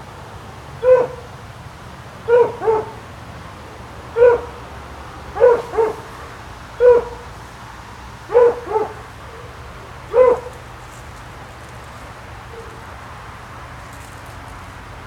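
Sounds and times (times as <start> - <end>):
dog barking: 0.8 - 1.3, 2.3 - 3.0, 4.2 - 4.6, 5.4 - 6.1, 6.8 - 7.2, 8.3 - 9.5, 10.1 - 10.6.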